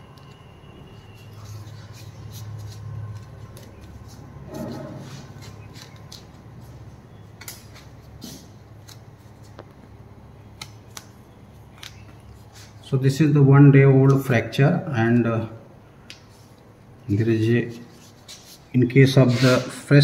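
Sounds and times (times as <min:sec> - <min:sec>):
adhesive tape crackling: 0:00.1 - 0:06.6, 0:10.6 - 0:12.4.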